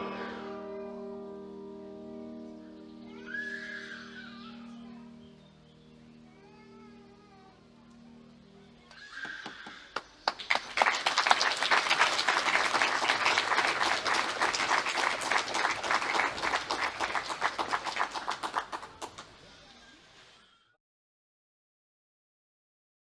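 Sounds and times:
audience applauding: 8.9 - 19.5.

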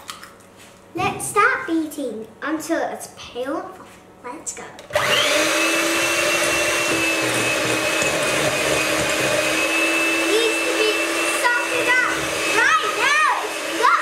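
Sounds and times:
electric hand mixer whining: 4.9 - 14.0.

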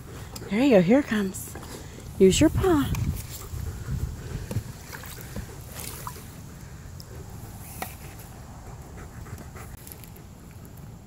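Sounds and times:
pool water splashing: 4.6 - 8.0.

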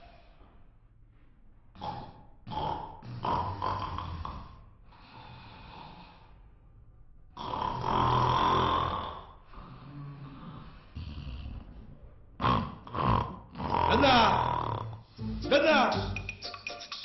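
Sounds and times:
man snoring: 1.8 - 6.3, 7.4 - 11.8, 12.4 - 15.3.

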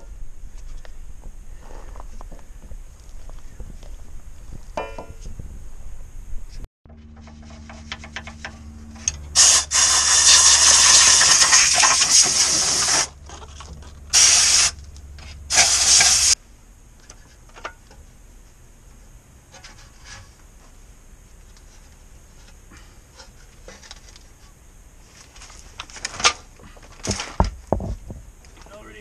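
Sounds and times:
low steady hum: 0.0 - 12.1
pressurised spray hissing: 9.4 - 13.1, 14.1 - 14.8, 15.5 - 16.4.

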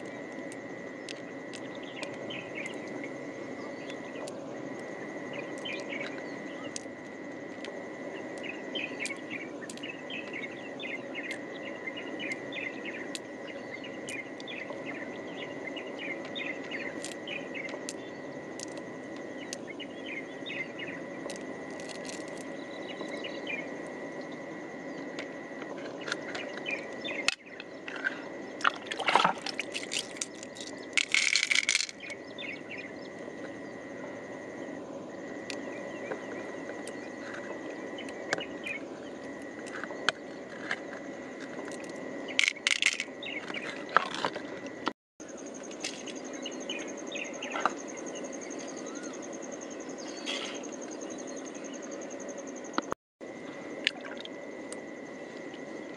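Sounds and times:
high insect trill: 0.0 - 55.9
hands rustling and scraping shell: 29.3 - 32.1.

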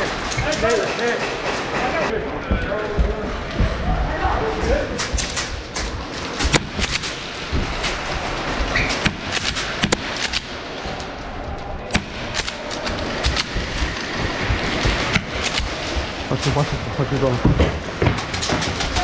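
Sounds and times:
echoing hall din: 0.0 - 19.0
airsoft guns popping: 5.0 - 16.3.

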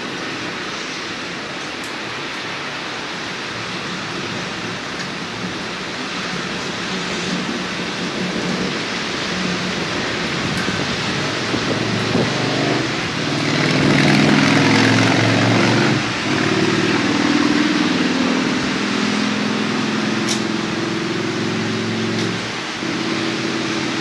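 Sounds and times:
steady rain hiss: 0.0 - 24.0
vehicle engine droning: 5.4 - 24.0.

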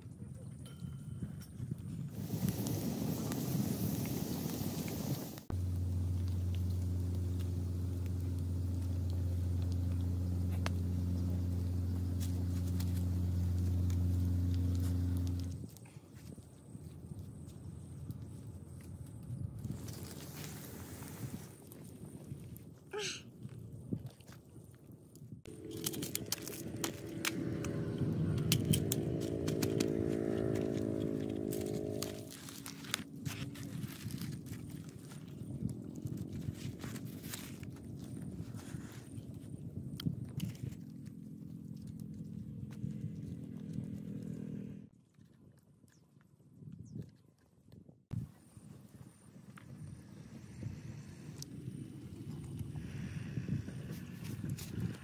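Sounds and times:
steady low hum: 0.6 - 21.3
wood fire crackling: 2.1 - 15.7
bamboo cracking and snapping: 5.5 - 16.0, 25.6 - 42.8.

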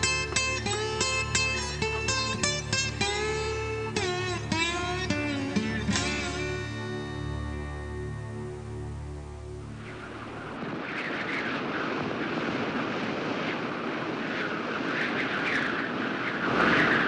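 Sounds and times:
guitar music: 0.0 - 10.6
strong wind gusts: 0.0 - 17.0.

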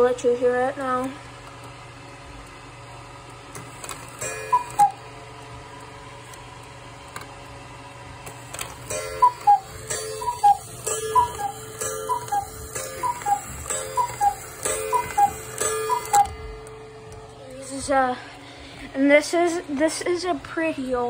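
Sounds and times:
cuckoo clock calls: 4.2 - 5.1, 8.8 - 16.6.

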